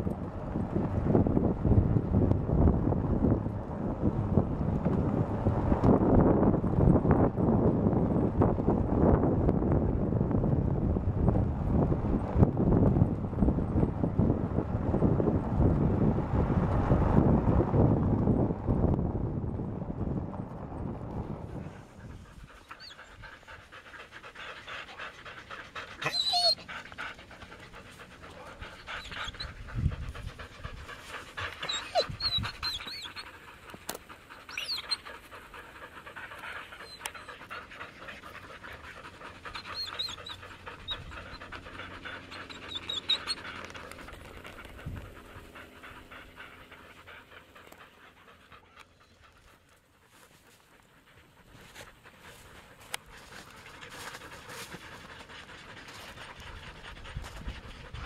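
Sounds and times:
dogs panting: 0:20.5 - 0:58.0.

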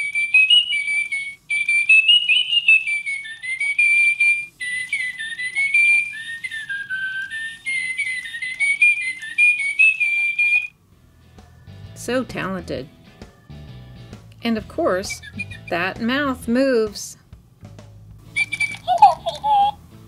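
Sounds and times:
toy bird whistled electronic tune: 0:00.0 - 0:10.8, 0:15.0 - 0:15.8, 0:18.3 - 0:19.8.

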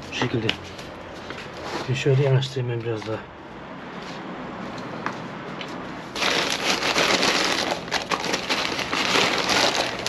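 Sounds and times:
plastic bag rustling: 0:06.1 - 0:10.0.

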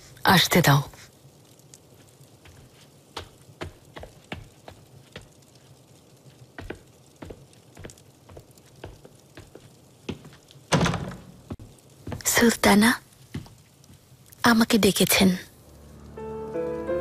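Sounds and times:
footsteps on hard floor: 0:02.4 - 0:05.3, 0:06.6 - 0:12.3, 0:13.3 - 0:14.0.

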